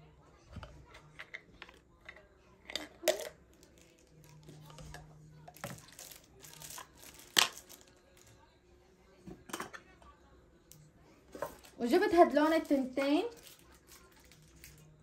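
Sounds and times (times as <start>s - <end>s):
plastic packaging crinkling: 5.6s - 8.3s, 12.4s - 15.0s.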